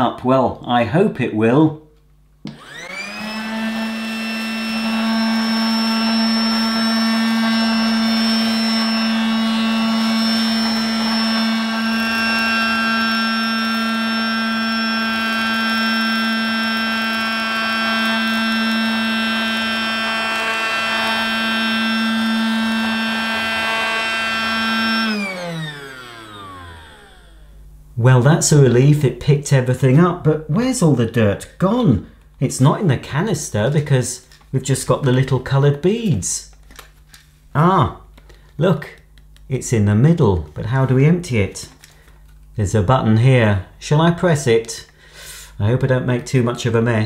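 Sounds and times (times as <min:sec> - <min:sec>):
toy vacuum motor whining: 0:02.5 - 0:27.6.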